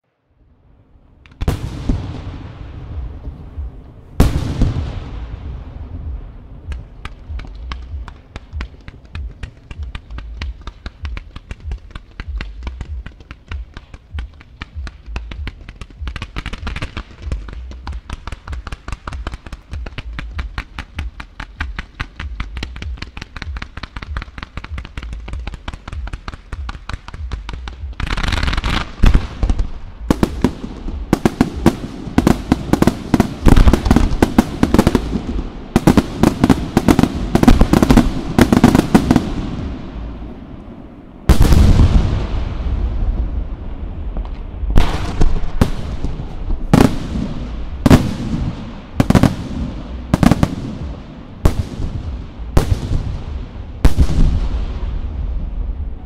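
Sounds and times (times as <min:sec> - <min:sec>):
small firework pops and launches: 0:06.6 - 0:35.1.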